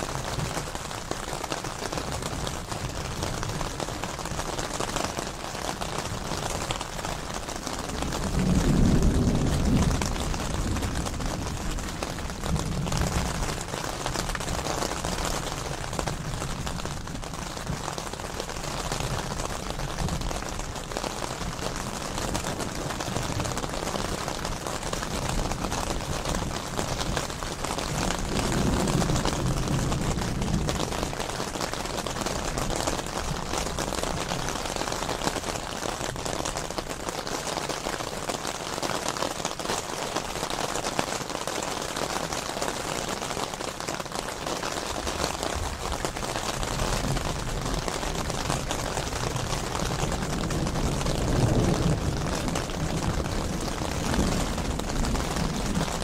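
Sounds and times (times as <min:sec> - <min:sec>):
steady rain falling: 0:00.0 - 0:56.0
low rumble of thunder: 0:07.2 - 0:18.2, 0:18.8 - 0:34.8, 0:45.2 - 0:56.0.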